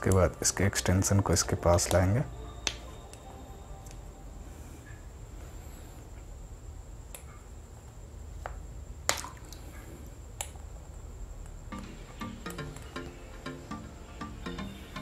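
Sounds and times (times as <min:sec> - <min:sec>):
plucked background music: 0:00.0 - 0:04.4, 0:11.7 - 0:15.0
low steady hum: 0:00.0 - 0:15.0.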